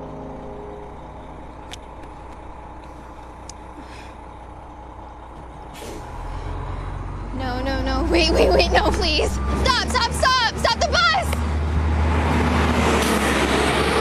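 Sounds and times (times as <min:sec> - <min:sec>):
bus engine rumble: 0:00.0 - 0:14.0
air brake hiss: 0:05.7 - 0:06.4.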